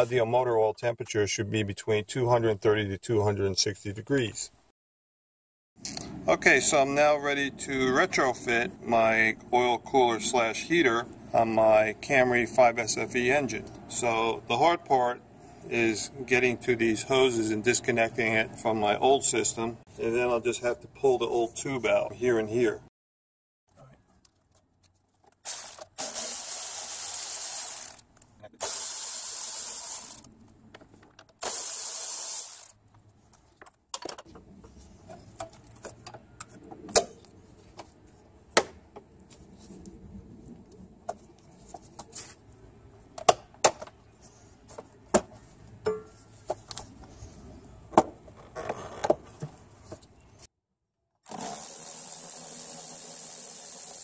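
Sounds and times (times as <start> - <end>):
electric ratchet spinning: 25.4 - 28.0, 28.6 - 30.3, 31.4 - 32.8, 51.3 - 54.0.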